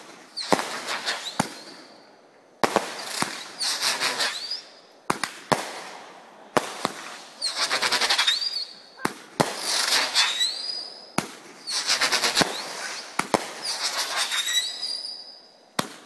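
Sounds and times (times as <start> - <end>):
firework bangs: 0.0 - 1.9, 2.6 - 16.0
firework crackling: 0.0 - 2.0, 2.6 - 16.0
shrill wavering firework whistles: 0.3 - 2.2, 2.8 - 4.9, 6.8 - 15.6.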